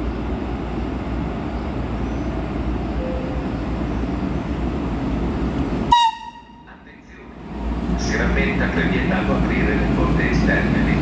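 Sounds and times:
train rumbling: 0.0 - 11.0.

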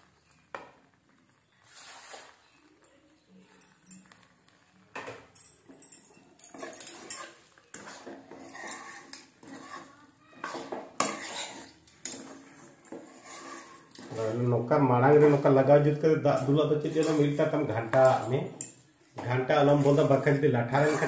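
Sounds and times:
spatula scraping metal pan: 1.6 - 2.4, 6.6 - 15.8, 16.9 - 18.2, 19.4 - 21.0.

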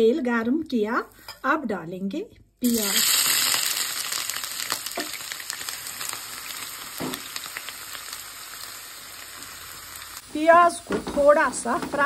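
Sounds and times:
onions sizzling in oil: 2.6 - 12.0.

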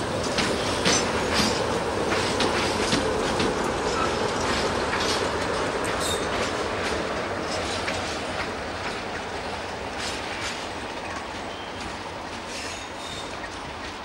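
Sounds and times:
train wheels clacking over joints: 0.0 - 14.0
high wheel squeal: 12.5 - 13.3.

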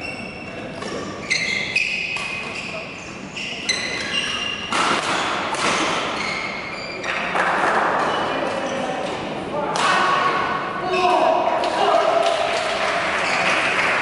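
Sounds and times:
voices in a hall: 0.0 - 14.0
racket striking shuttlecock: 4.7 - 6.2.

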